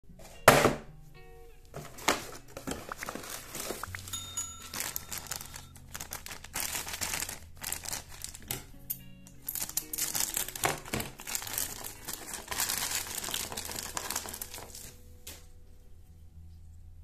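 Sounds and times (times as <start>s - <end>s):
light background music: 0.1s - 17.0s
plastic bag crinkling: 1.8s - 8.6s, 9.3s - 15.0s
short bell chime: 4.0s - 5.7s.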